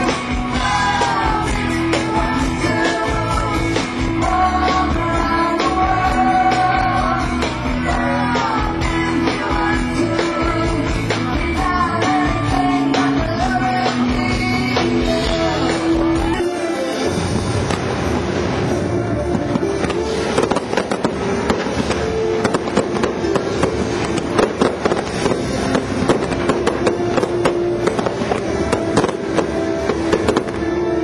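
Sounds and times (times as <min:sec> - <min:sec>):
person singing: 0:00.0 - 0:17.1
rock band playing: 0:00.0 - 0:31.0.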